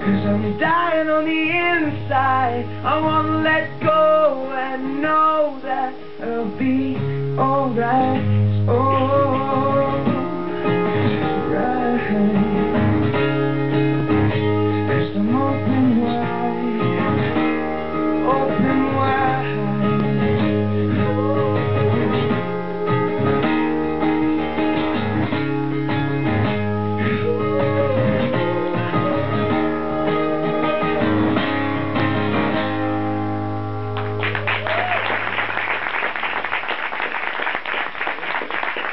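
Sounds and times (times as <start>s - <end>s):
acoustic guitar strumming: 0.0s - 34.4s
audience applause: 34.0s - 38.9s.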